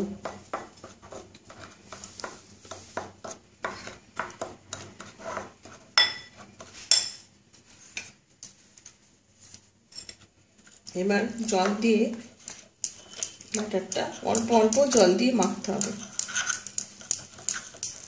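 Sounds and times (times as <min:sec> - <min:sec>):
metal spoon stirring flour in bowl: 0:00.0 - 0:08.1, 0:10.0 - 0:18.0
spoon clinking against bowl: 0:12.5 - 0:18.0.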